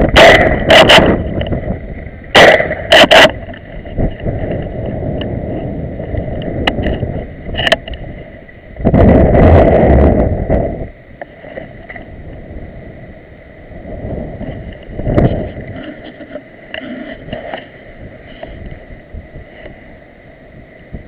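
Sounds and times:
microphone handling noise: 0:00.0 - 0:12.6, 0:13.8 - 0:19.8
wind rush on microphone: 0:00.0 - 0:21.0
gunshots: 0:02.4 - 0:02.7.

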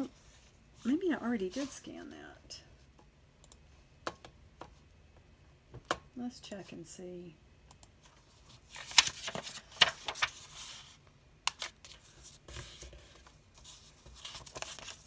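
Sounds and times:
paper rustling and sliding: 0:08.2 - 0:15.0
paper crackles: 0:08.4 - 0:15.0.

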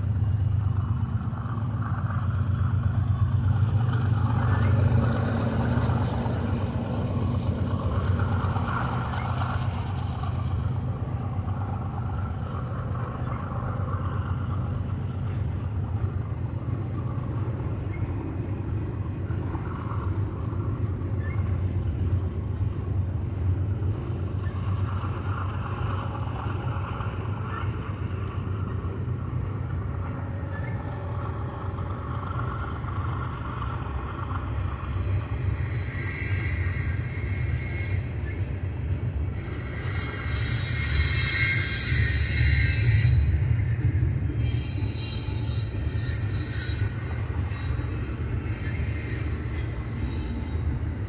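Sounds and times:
freight train rumbling past: 0:00.0 - 0:51.0
high-pitched wheel squeal: 0:34.8 - 0:38.7, 0:39.4 - 0:43.8, 0:44.4 - 0:51.0.

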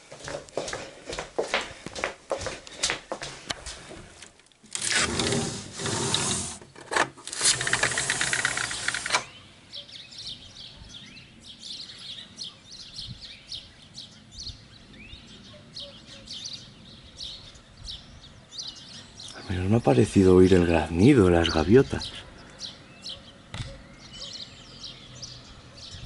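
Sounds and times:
small birds chirping: 0:07.8 - 0:26.0.

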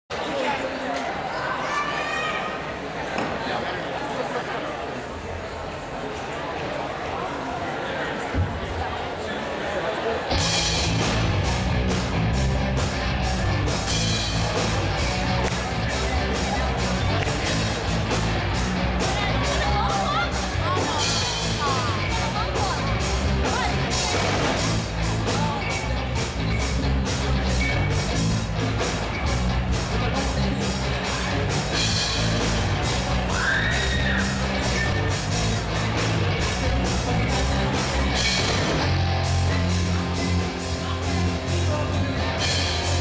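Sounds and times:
bass guitar: 0:10.3 - 0:43.0
distorted electric guitar: 0:10.3 - 0:43.0
drum kit with cymbal hits: 0:10.3 - 0:43.0.

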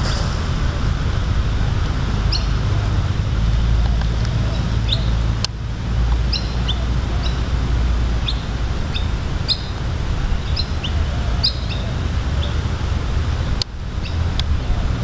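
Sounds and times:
steady low rumble: 0:00.0 - 0:06.3
small birds chirping: 0:02.3 - 0:02.7, 0:06.2 - 0:07.6, 0:08.2 - 0:12.8, 0:14.0 - 0:14.4.

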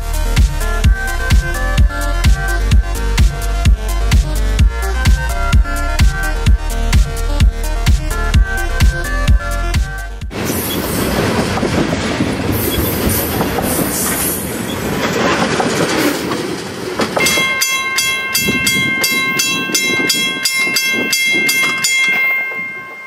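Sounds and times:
rumble of rolling rail cars: 0:00.0 - 0:23.0
train wheels clattering over rail joints: 0:10.3 - 0:23.0
crossing bell ringing: 0:17.2 - 0:23.0.

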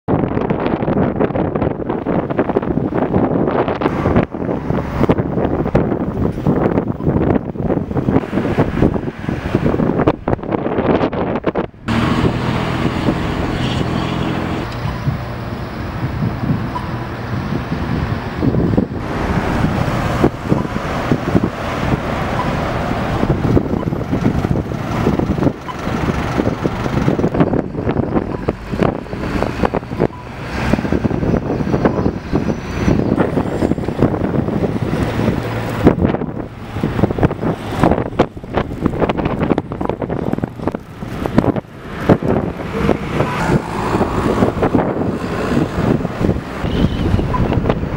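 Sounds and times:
road traffic passing: 0:00.1 - 0:47.9
wind buffeting microphone: 0:00.1 - 0:47.9
vehicles driving past: 0:00.2 - 0:47.9
car passing close by: 0:11.9 - 0:14.9, 0:40.8 - 0:47.9.

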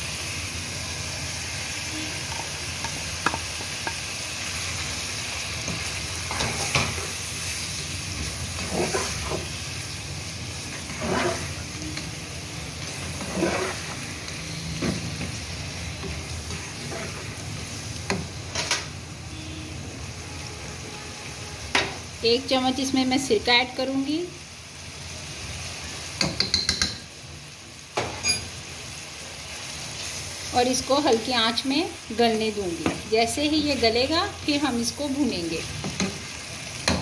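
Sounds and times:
chicken sizzling in hot oil: 0:00.0 - 0:37.0
spatula scraping a pot: 0:08.6 - 0:09.4, 0:10.7 - 0:11.6, 0:12.8 - 0:14.0, 0:16.5 - 0:17.3.

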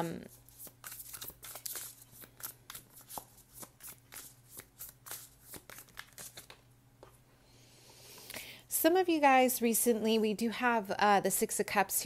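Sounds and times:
cards being shuffled by hand: 0:00.3 - 0:07.2.

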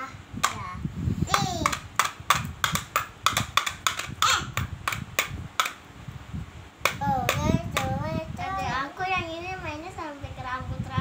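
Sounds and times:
child's high voice: 0:00.0 - 0:01.9, 0:04.2 - 0:04.6, 0:07.0 - 0:11.0.

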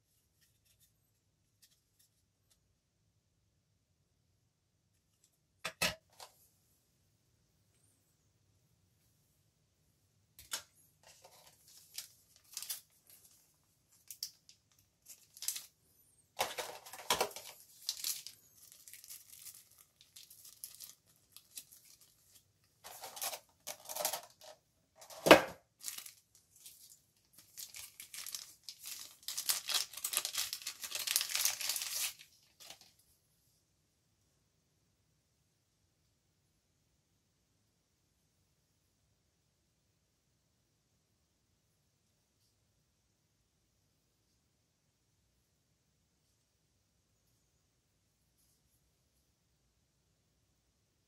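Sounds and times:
plastic bags crinkling: 0:10.5 - 0:15.8, 0:16.4 - 0:32.9.

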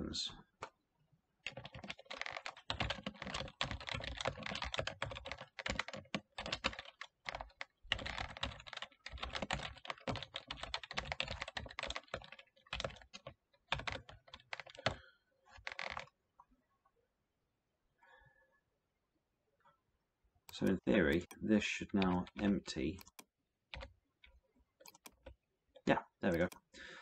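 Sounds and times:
typing on computer keyboard: 0:01.4 - 0:15.0, 0:15.6 - 0:16.1, 0:20.5 - 0:26.7.

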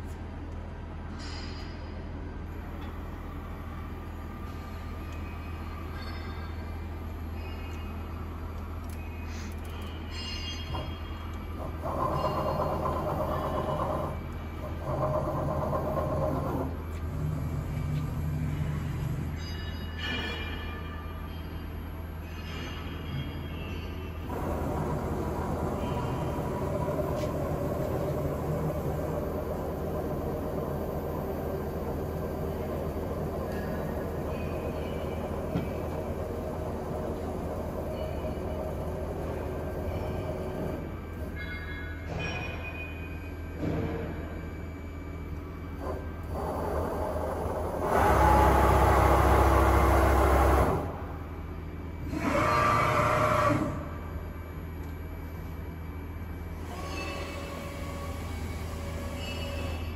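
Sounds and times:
faint machine whine: 0:00.0 - 0:59.9
milling machine humming: 0:09.8 - 0:20.1.

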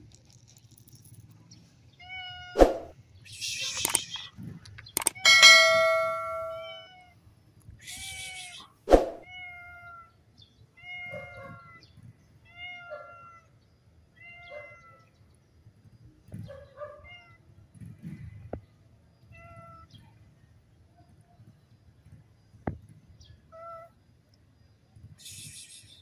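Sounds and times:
mouse clicks: 0:03.8 - 0:04.2, 0:04.8 - 0:05.2
cat meowing: 0:10.8 - 0:11.8, 0:12.5 - 0:13.5
short hissing noise: 0:25.2 - 0:26.0.

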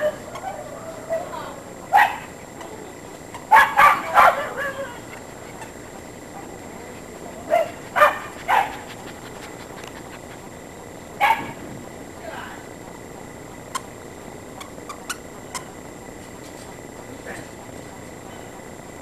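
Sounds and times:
dog barking: 0:01.9 - 0:02.3, 0:03.4 - 0:06.6, 0:07.4 - 0:10.2, 0:11.2 - 0:11.6.

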